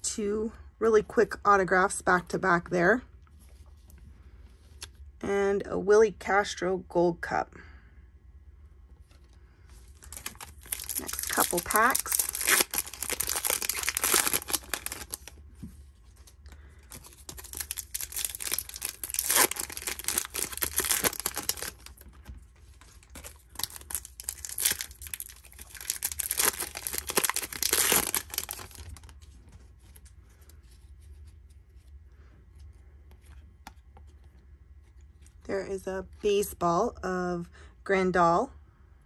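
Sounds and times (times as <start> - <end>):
foil wrappers tearing and crinkling: 10.0 - 15.4, 16.8 - 29.3.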